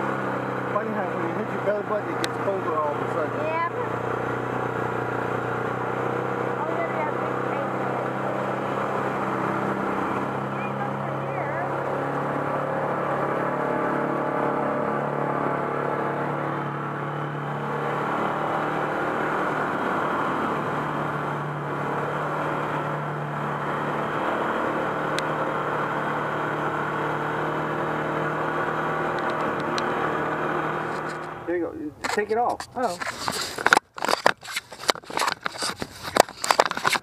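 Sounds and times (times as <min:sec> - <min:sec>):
utility vehicle engine hum: 0:00.0 - 0:37.0
tyre noise: 0:29.0 - 0:37.0.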